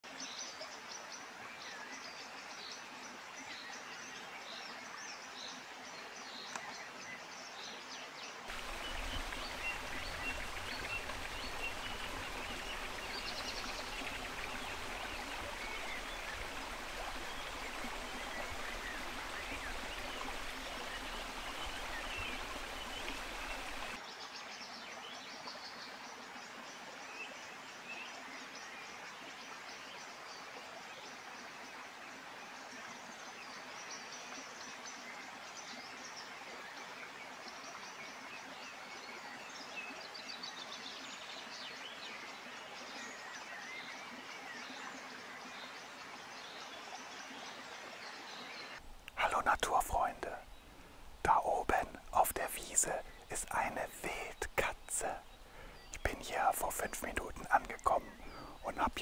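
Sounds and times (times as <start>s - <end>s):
soft background hiss: 48.5s - 59.0s.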